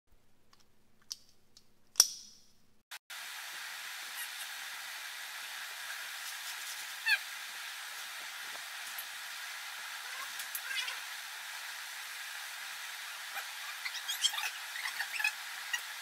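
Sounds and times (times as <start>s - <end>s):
room noise hiss: 1.7s - 16.0s.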